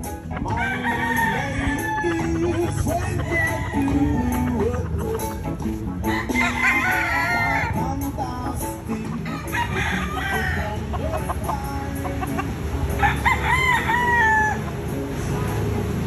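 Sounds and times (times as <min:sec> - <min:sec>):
rooster clucking: 0:00.0 - 0:15.6
rooster crowing: 0:00.5 - 0:04.8, 0:06.0 - 0:07.9, 0:09.2 - 0:10.8, 0:13.0 - 0:14.7.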